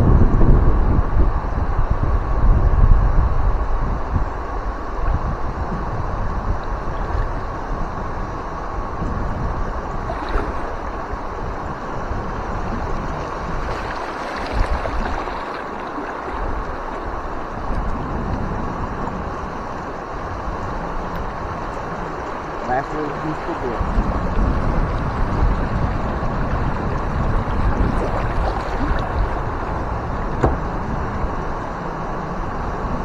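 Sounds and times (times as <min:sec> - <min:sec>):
wind buffeting microphone: 0:00.0 - 0:33.0
river water rushing over rapids: 0:09.7 - 0:32.7.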